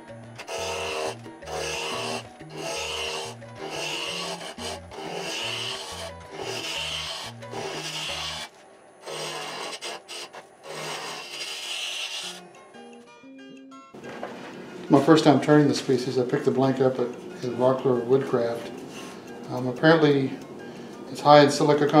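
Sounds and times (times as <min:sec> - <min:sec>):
background music with bass: 0:00.0 - 0:08.4
gouge scraping wood on lathe: 0:00.4 - 0:12.4.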